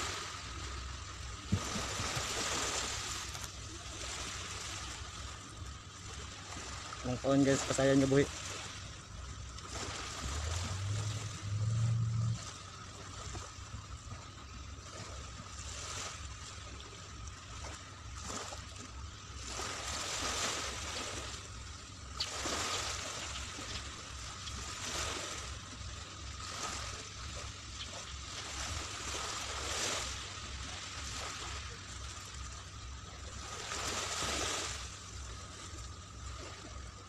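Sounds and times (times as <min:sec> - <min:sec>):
small waves washing on sand: 0:00.0 - 0:37.0
steady low hum: 0:00.0 - 0:37.0.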